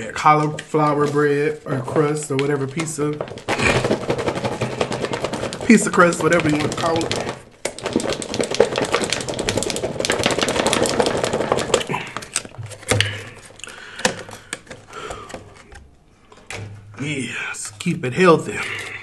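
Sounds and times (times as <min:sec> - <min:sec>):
plastic container crackling: 0:00.4 - 0:15.8
plastic lid clicking and creaking: 0:02.3 - 0:16.7.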